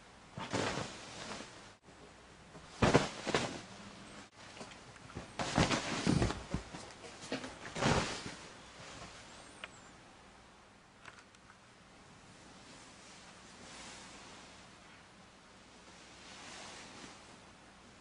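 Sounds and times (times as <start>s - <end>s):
bedding rustling: 0.3s - 9.5s, 12.6s - 14.8s, 15.8s - 17.5s.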